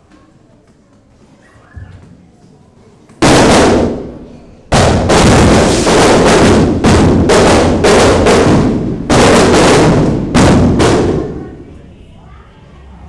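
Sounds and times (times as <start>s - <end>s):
firecrackers banging and crackling: 3.2s - 11.7s.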